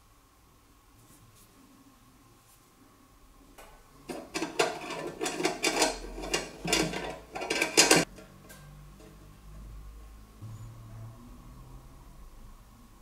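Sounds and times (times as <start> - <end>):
metal lantern clinking and scraping: 4.1 - 8.2.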